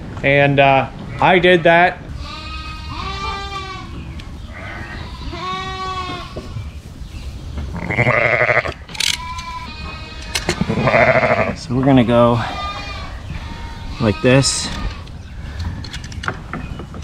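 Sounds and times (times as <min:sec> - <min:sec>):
sheep bleating: 0:01.1 - 0:06.4, 0:07.8 - 0:11.6, 0:12.4 - 0:15.1.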